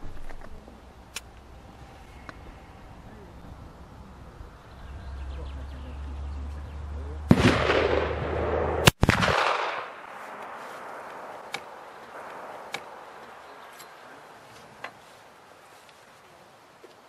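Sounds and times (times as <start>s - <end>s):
sharp crack: 1.1s - 1.5s, 7.2s - 14.0s
rifle shot with long echo: 7.3s - 13.4s.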